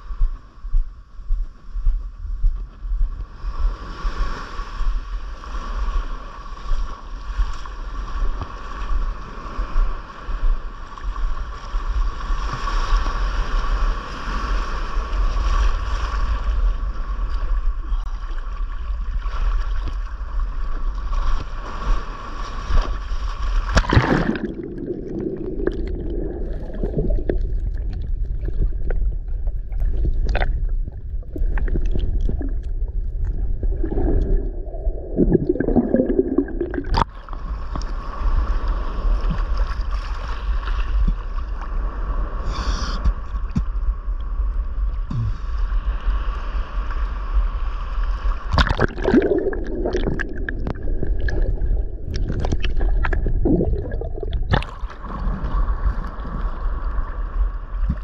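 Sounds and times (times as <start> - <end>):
low rumble of water: 0.0 - 58.0
seawater surging and washing: 4.3 - 58.0
small clicks underwater: 27.2 - 33.4
muffled underwater sound: 42.4 - 46.0.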